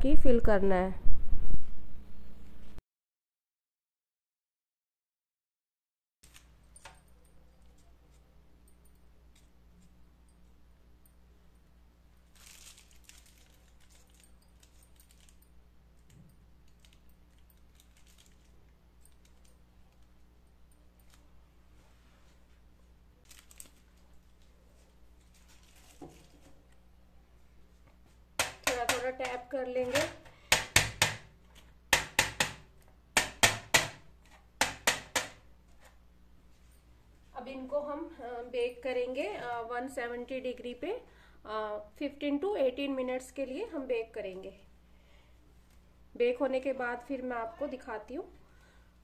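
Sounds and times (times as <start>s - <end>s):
plastic piping bag crinkling: 12.2s - 20.3s, 22.8s - 26.8s
muffin moulds knocking on tray: 28.4s - 31.3s, 31.9s - 34.0s, 34.6s - 35.4s.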